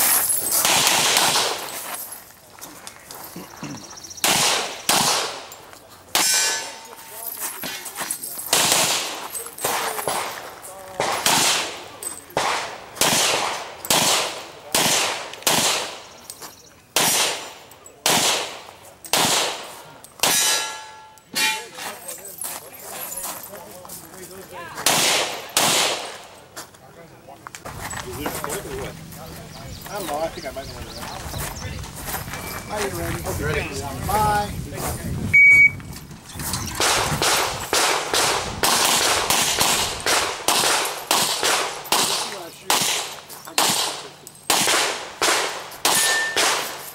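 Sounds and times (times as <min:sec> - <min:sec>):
handgun shots with echo: 0:00.6 - 0:01.6, 0:04.2 - 0:05.5, 0:08.5 - 0:10.4, 0:11.0 - 0:16.1, 0:17.0 - 0:21.6, 0:24.8 - 0:26.2, 0:36.8 - 0:46.9.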